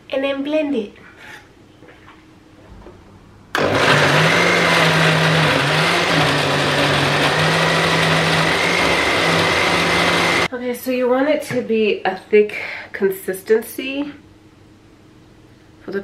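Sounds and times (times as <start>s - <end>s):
blender motor running: 3.6s - 10.5s.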